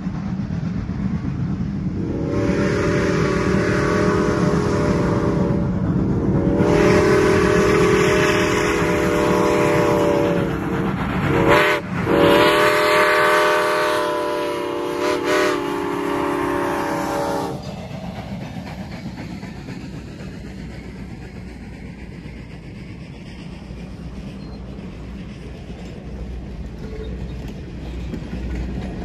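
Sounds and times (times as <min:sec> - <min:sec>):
low rumble of train: 0:00.0 - 0:29.0
passenger coaches rolling past: 0:00.0 - 0:29.0
steam locomotive whistle: 0:02.0 - 0:10.6, 0:11.3 - 0:17.7.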